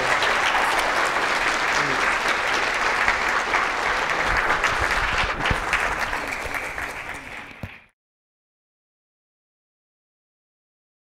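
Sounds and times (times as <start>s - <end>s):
audience applauding: 0.0s - 7.9s.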